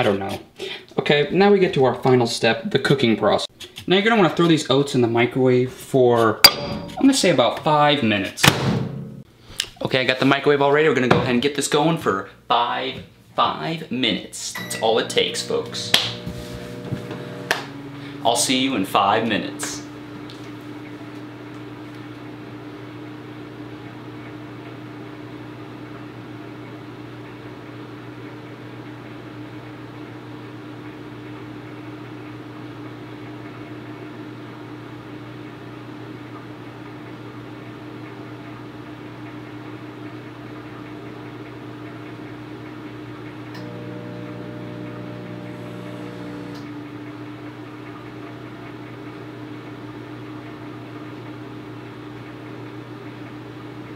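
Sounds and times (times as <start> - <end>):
extra hum: 14.5 - 22.2, 43.5 - 47.1
microwave oven humming: 14.5 - 53.9.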